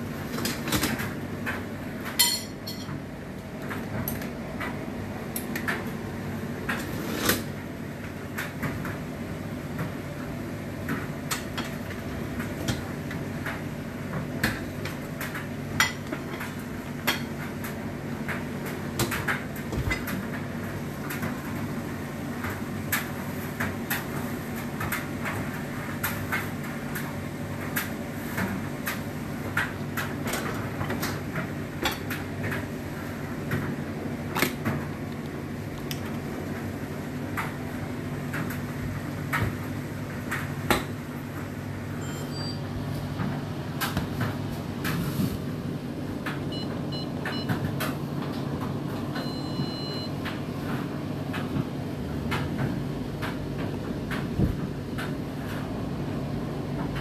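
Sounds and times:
dishes clinking against wire racks: 2.2s - 3.0s.

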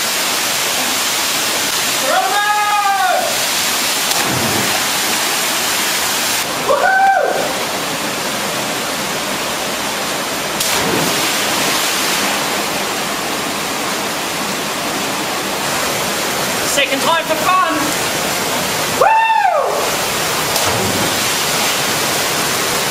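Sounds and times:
waterfall rushing: 0.0s - 22.9s
person shouting: 2.0s - 3.4s.

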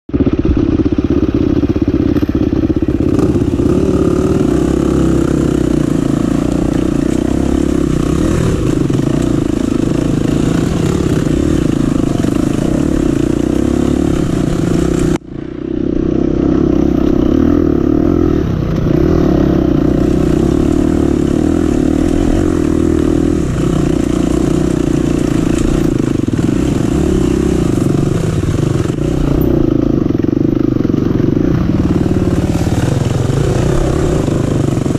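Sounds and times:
dirt bike engine under load: 18.0s - 34.9s.

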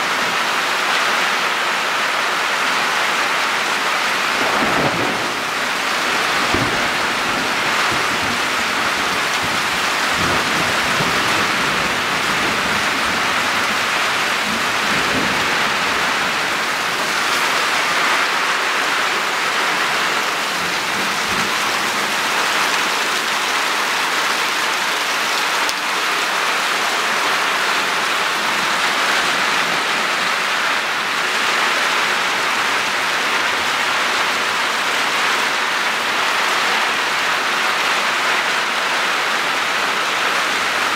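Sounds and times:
heavy rain: 0.0s - 40.9s
thunder rumbling: 4.1s - 24.0s.

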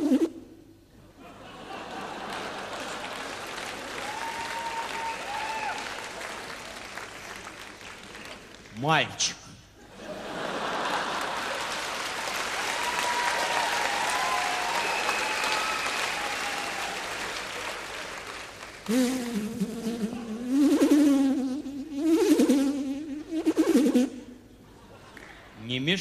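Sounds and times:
person imitating a buzzing fly: 0.0s - 0.4s, 18.9s - 24.4s
audience applauding: 1.9s - 8.7s, 10.3s - 18.9s.

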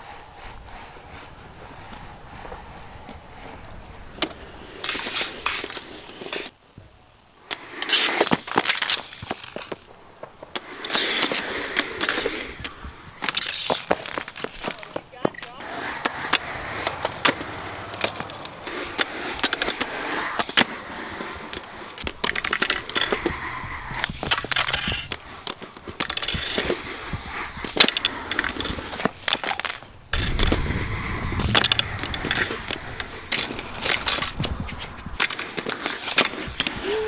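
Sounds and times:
skateboard wheels rolling on concrete: 0.0s - 37.0s
skateboard clacks and knocks: 7.9s - 37.0s.

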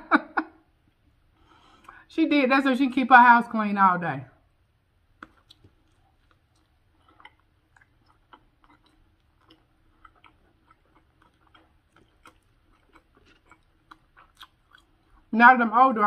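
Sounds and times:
chewing with wet mouth clicks: 5.0s - 15.3s.

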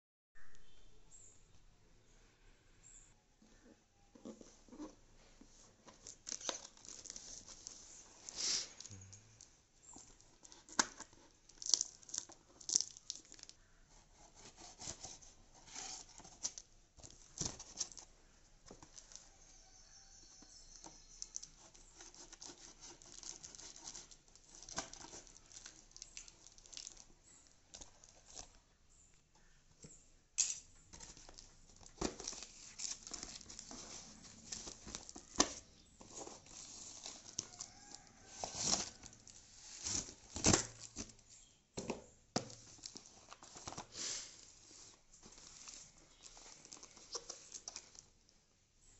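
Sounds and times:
cardboard and wrapping rustling: 4.2s - 9.1s, 9.8s - 28.7s, 30.9s - 48.3s
tape tearing: 38.4s - 41.2s.

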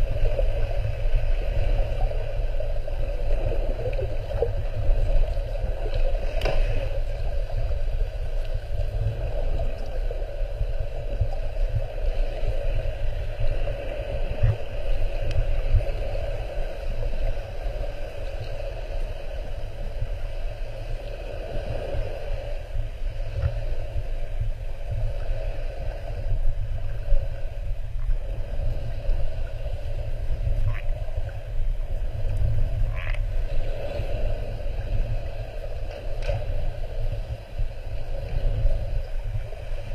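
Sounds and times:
churning underwater rumble: 0.0s - 39.9s
faint clicks: 15.2s - 15.4s.

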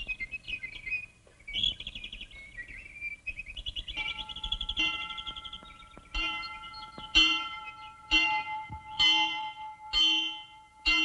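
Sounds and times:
bird-like trill: 0.0s - 11.0s
bell striking: 4.0s - 11.0s
sustained orchestral tones: 4.0s - 11.0s.

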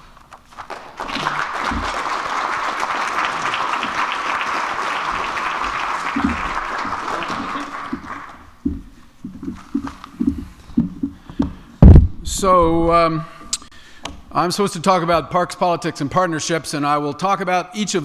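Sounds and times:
audience applauding: 0.6s - 8.6s
low thumps: 7.9s - 13.0s.

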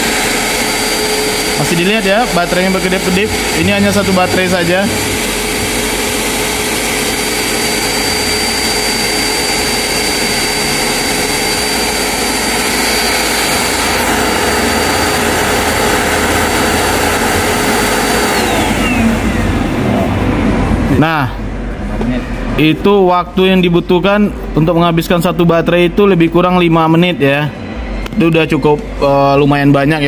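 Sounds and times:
handheld vacuum cleaner motor whining: 0.0s - 19.4s.

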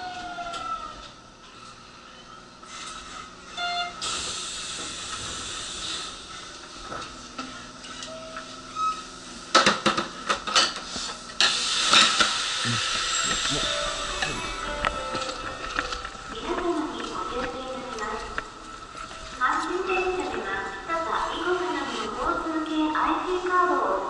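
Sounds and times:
pneumatic doors hissing: 3.8s - 6.3s, 10.8s - 14.6s.

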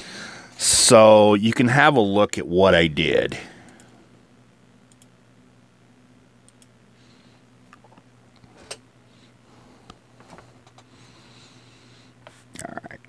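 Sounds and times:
low steady hum: 0.0s - 13.0s
faint clicks: 4.9s - 5.2s, 6.4s - 6.8s.

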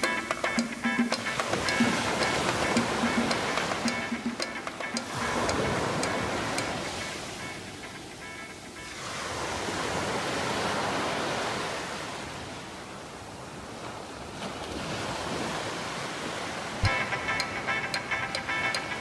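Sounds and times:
music with a beat: 0.0s - 7.2s, 16.8s - 19.0s
small waves breaking on shore: 0.0s - 17.8s.

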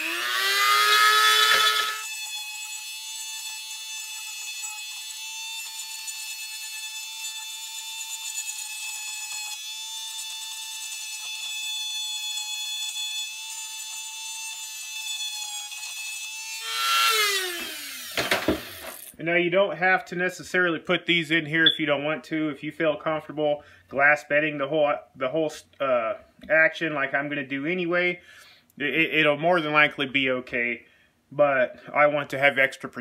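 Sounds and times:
rotary tool carving wood: 0.0s - 19.1s.

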